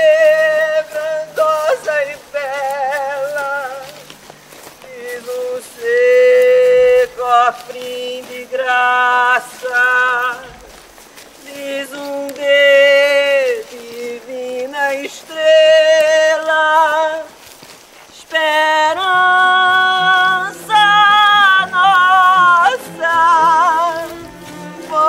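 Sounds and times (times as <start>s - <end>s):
woman singing wordless melody: 0.0s - 10.8s, 11.4s - 25.0s
low sustained accompaniment: 19.9s - 25.0s.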